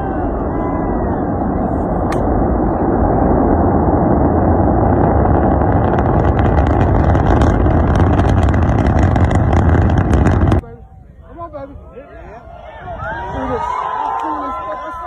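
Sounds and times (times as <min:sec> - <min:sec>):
rocket engines rumbling: 0:00.0 - 0:15.0
crackle of sharp pops: 0:02.0 - 0:02.5.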